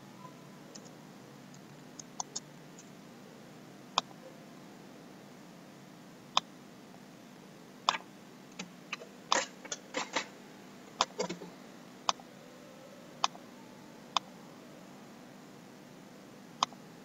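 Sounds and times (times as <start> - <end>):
computer mouse clicking: 1.5 - 2.9.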